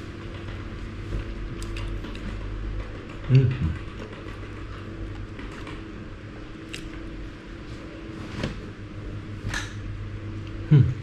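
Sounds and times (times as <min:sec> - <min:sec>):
steady low hum: 0:00.0 - 0:11.0
chewing fried chicken: 0:00.2 - 0:07.4.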